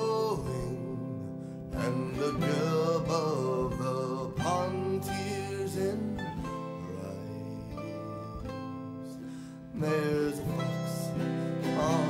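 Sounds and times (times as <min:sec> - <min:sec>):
acoustic guitar: 0:00.0 - 0:12.0
sliding melody line: 0:09.8 - 0:12.0.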